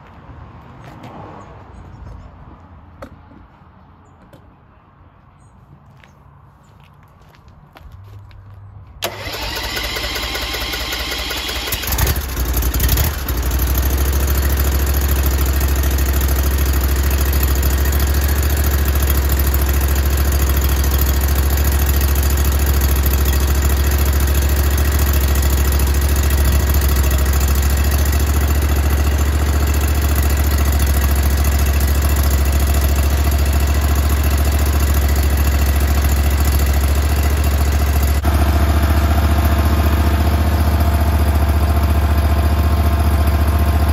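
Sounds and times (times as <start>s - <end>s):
garden tractor engine running: 9.0s - 43.9s.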